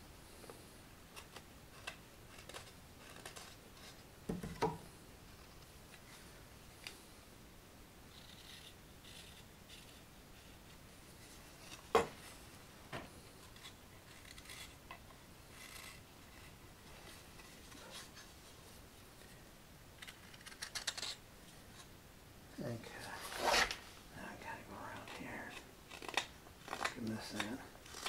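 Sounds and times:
knife scraping wood: 1.1s - 4.0s, 8.1s - 12.4s, 13.3s - 18.4s, 23.2s - 23.8s, 25.0s - 28.0s.

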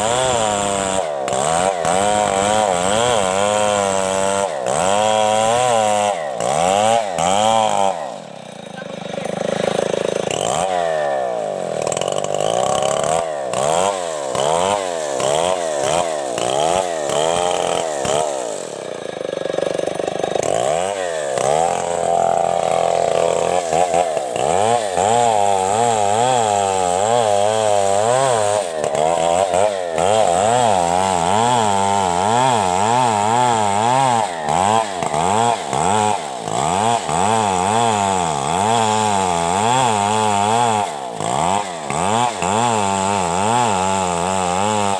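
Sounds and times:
chainsaw cutting log: 0.0s - 44.9s.

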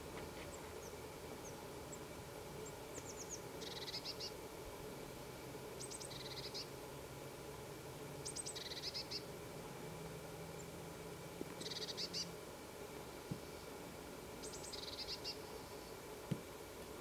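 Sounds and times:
songbird singing with trill: 2.6s - 4.4s, 5.8s - 6.7s, 8.2s - 9.3s, 11.6s - 12.3s, 14.4s - 15.5s.

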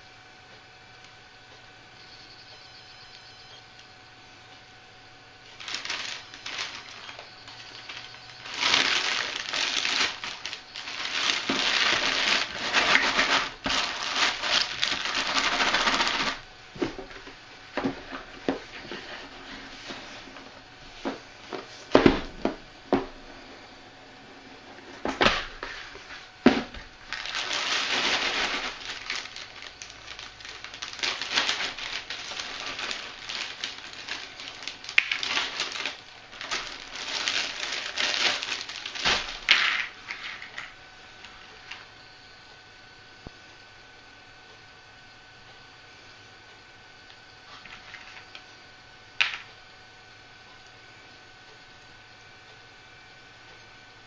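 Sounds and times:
plastic bag crinkling: 5.4s - 20.4s, 24.9s - 40.8s.

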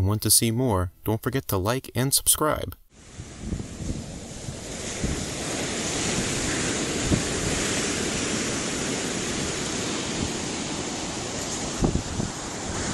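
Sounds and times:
ocean surf on beach: 2.9s - 12.9s
wind buffeting microphone: 3.0s - 12.9s.

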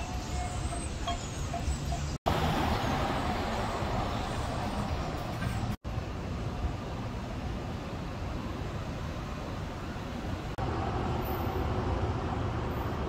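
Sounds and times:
city traffic rumble: 0.0s - 13.0s.

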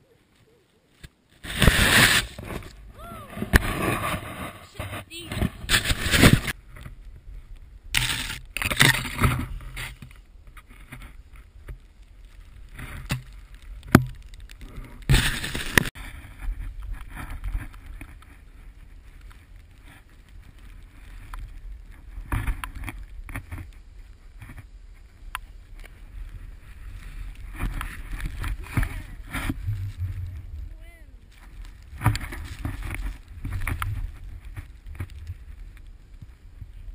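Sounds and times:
snowboard hissing through snow: 1.4s - 2.6s
wind rumble: 1.4s - 36.9s.

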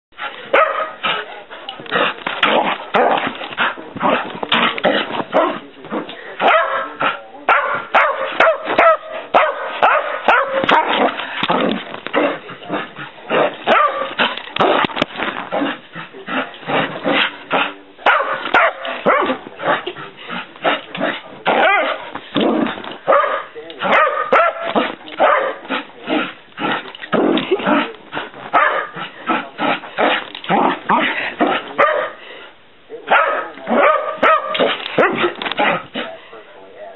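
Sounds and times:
dog barking excitedly: 0.5s - 1.2s, 2.6s - 3.3s, 6.4s - 14.9s, 18.0s - 19.8s, 21.0s - 22.1s, 23.0s - 25.9s, 28.5s - 32.2s, 33.1s - 36.1s.

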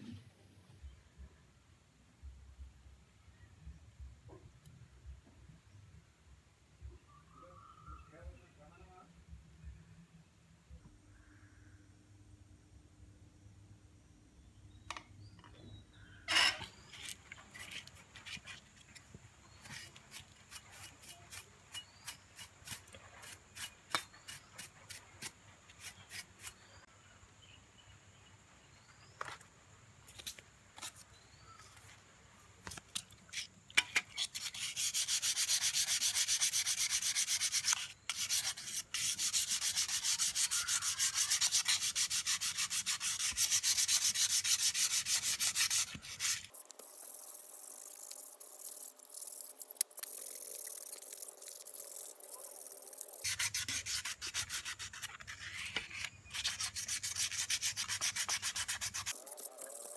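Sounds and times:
fast back-and-forth scrubbing: 34.1s - 55.7s, 56.3s - 59.9s.

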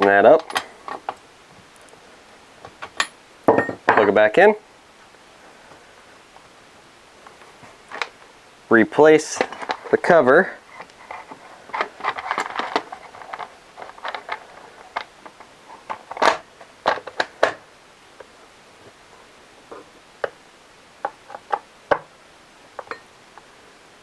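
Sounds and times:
plastic cover clicking and scraping: 10.8s - 17.6s.

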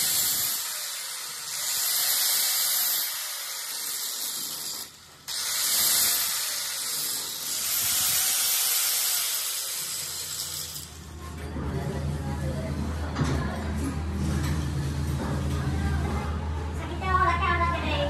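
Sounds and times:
angle grinder grinding steel: 0.0s - 11.1s.

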